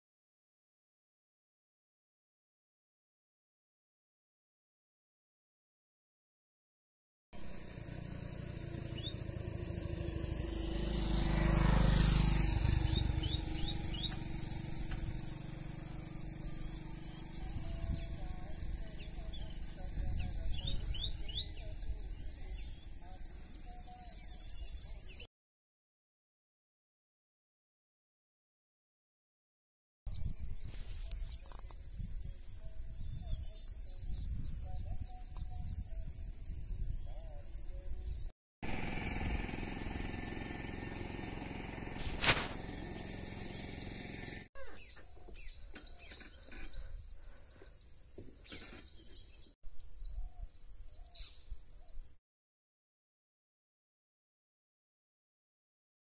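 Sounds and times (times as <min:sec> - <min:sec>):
high-pitched insect drone: 0:07.4 - 0:20.8
rising bird chirps: 0:07.4 - 0:25.3, 0:40.4 - 0:52.2
wind buffeting microphone: 0:17.4 - 0:22.1, 0:30.1 - 0:37.2
faint short bird calls: 0:44.6 - 0:47.8.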